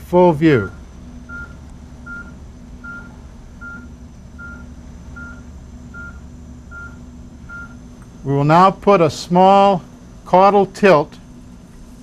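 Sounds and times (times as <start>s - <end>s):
low electrical hum: 0.0s - 12.0s
medical equipment beeping: 0.6s - 7.9s.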